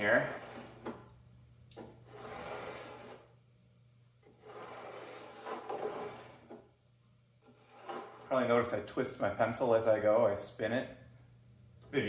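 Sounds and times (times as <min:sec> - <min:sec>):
pencil scratching on wood: 0:02.1 - 0:03.3, 0:04.3 - 0:06.6, 0:07.4 - 0:08.3.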